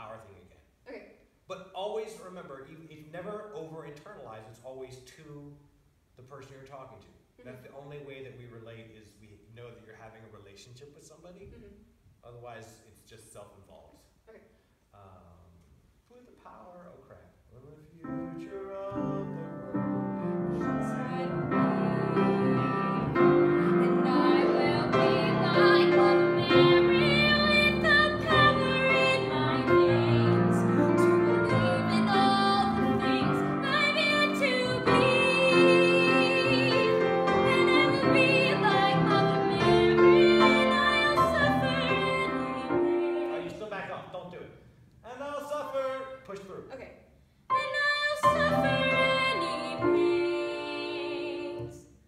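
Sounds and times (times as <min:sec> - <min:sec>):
grand piano accompaniment: 0:18.0 - 0:43.6, 0:47.5 - 0:51.8
woman singing: 0:20.6 - 0:43.5, 0:47.5 - 0:51.8.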